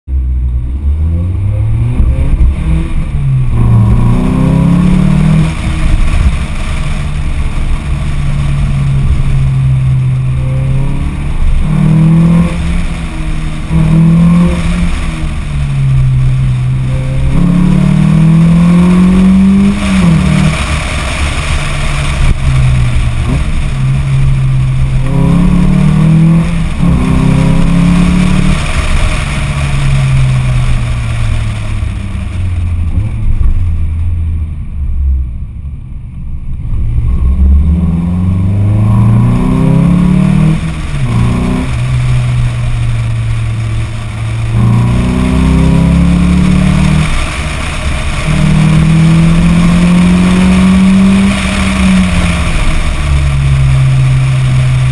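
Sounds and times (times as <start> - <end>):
car engine revving: 0.0 - 54.9
road rumble: 0.0 - 54.9
wind on microphone: 1.8 - 6.6.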